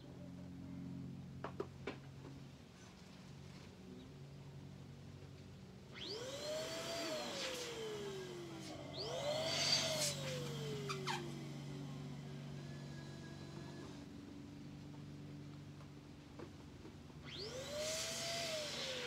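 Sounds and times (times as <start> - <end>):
small electric motor spinning: 5.9 - 14.1, 17.2 - 19.0.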